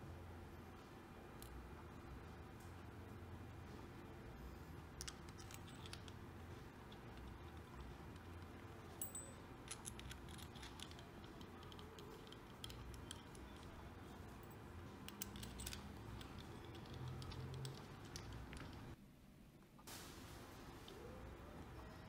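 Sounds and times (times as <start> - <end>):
metal parts clicking and tapping: 5.0 - 19.0.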